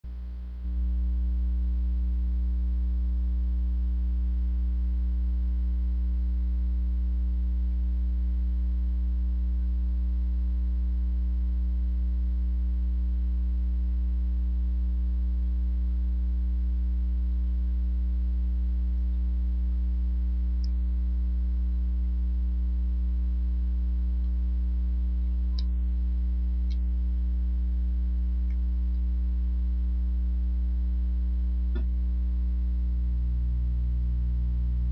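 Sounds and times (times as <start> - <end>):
mains hum: 0.1 - 34.9.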